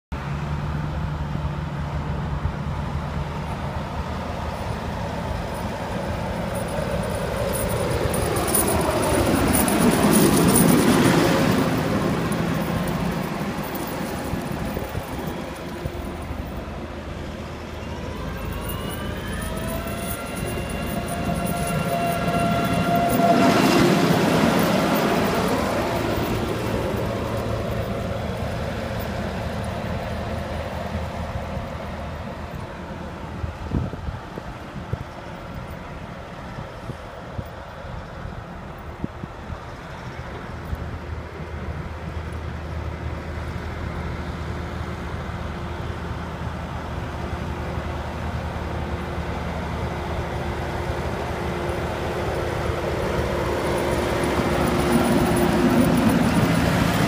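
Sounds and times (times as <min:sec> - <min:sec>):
tractor snow blower passing: 0:00.2 - 0:33.6, 0:39.7 - 0:57.0
steady whine: 0:01.8 - 0:33.6.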